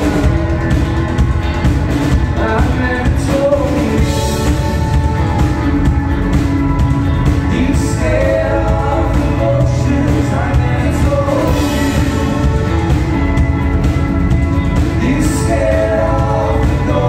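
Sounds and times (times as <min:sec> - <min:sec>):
lead vocal singing: 0:00.0 - 0:01.3, 0:02.0 - 0:05.5, 0:07.2 - 0:13.1, 0:14.8 - 0:17.0
bass guitar: 0:00.0 - 0:17.0
drums with steady beat: 0:00.0 - 0:17.0
electric guitars: 0:00.0 - 0:17.0.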